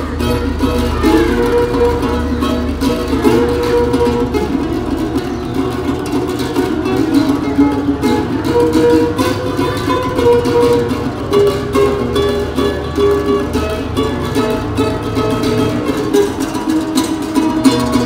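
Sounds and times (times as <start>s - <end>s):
classical guitar fingerpicking: 0.0s - 18.0s.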